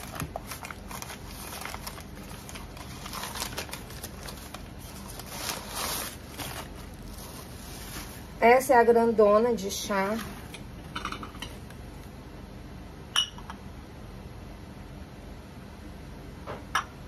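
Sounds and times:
paper rustling and crinkling: 0.0s - 8.4s, 9.8s - 10.5s.

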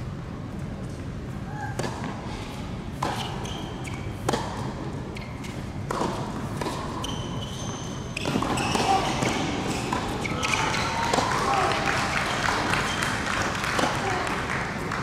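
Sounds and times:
tennis ball bouncing on court: 1.7s - 2.2s, 2.9s - 11.3s, 13.4s - 14.1s
racket striking ball: 2.9s - 7.0s, 8.2s - 11.2s
voices in a large hall: 8.8s - 15.0s.

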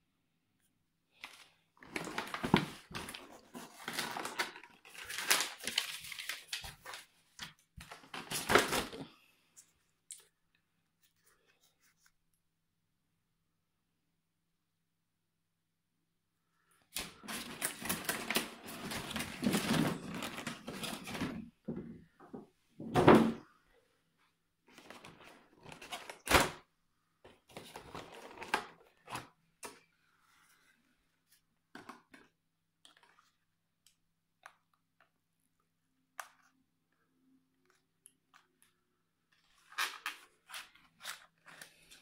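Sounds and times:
plastic packaging crinkling: 1.8s - 9.1s.

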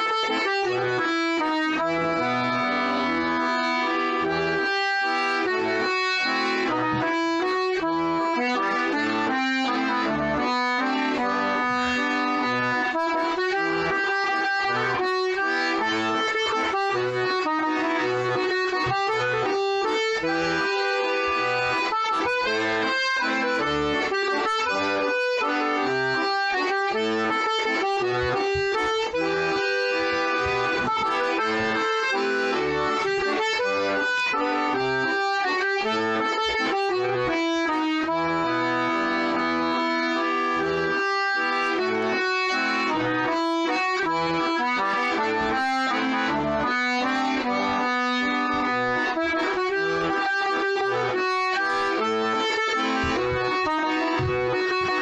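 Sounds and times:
button accordion playing a tune: 0.0s - 55.0s.

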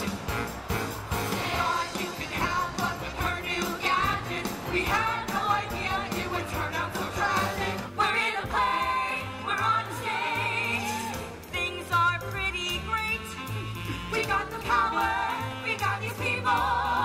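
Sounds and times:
ensemble singing: 0.0s - 11.8s
steady bass line: 0.0s - 17.0s.

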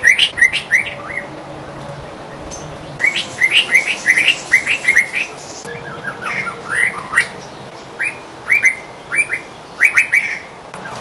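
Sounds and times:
bird singing whistled notes: 2.5s - 11.0s.

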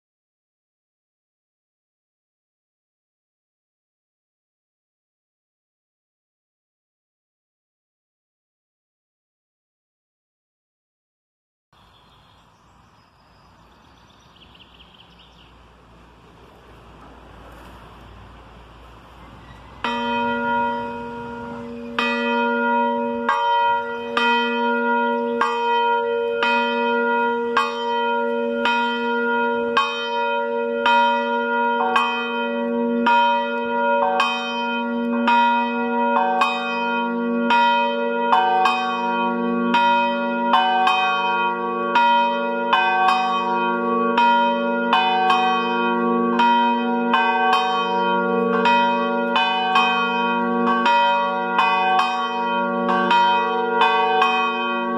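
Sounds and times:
church bells ringing: 15.6s - 54.9s.

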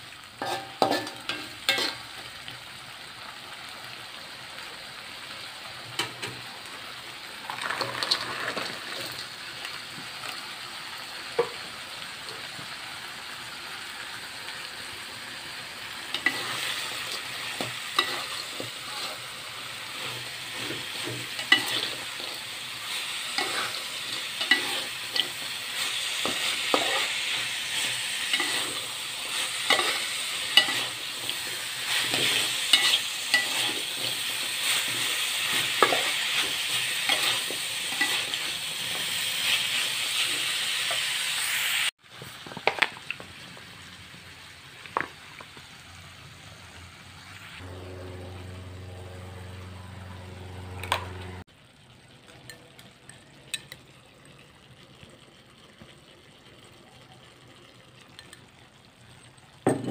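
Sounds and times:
food sizzling in a wok: 0.0s - 59.9s
metal spatula scraping a pan: 0.4s - 2.1s, 16.1s - 41.1s.

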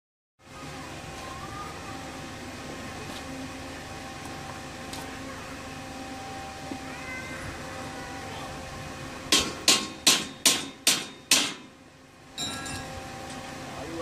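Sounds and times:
hammer blows on metal: 9.3s - 11.7s.

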